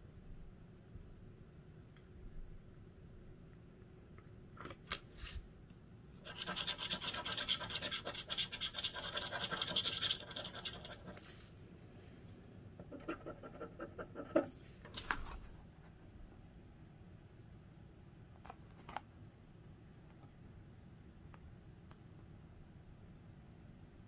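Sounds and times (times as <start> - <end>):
scratching lottery ticket: 6.2 - 11.5.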